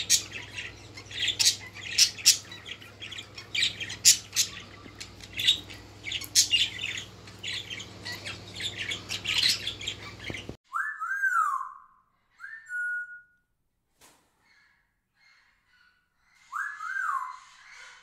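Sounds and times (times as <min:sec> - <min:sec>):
parakeet chattering: 0:00.0 - 0:10.6
whistled tones: 0:10.7 - 0:13.5.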